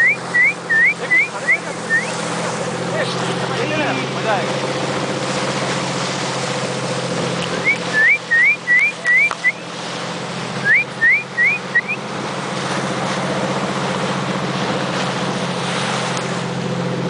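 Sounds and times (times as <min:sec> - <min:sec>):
short sharp rising whistles: 0:00.0 - 0:02.2, 0:07.6 - 0:09.6, 0:10.6 - 0:12.0
boat engine running: 0:00.0 - 0:17.0.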